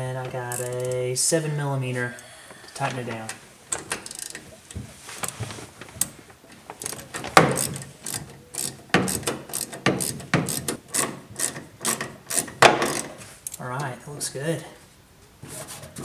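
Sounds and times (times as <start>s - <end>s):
ratchet clicking: 0.5s - 1.0s, 3.8s - 4.4s, 6.8s - 13.6s.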